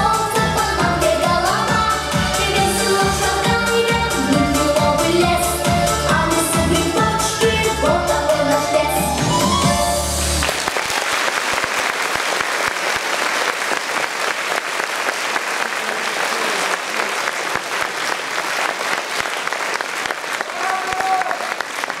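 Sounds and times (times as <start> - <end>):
dance music: 0.0 - 10.4
audience applauding: 10.4 - 22.0.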